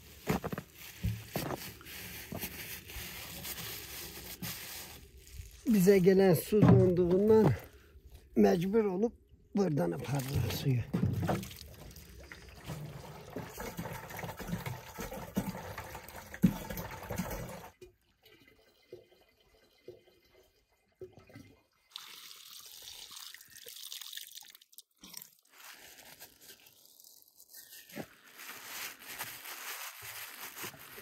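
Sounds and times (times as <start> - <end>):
water pouring into plastic container: 10.0 - 31.0.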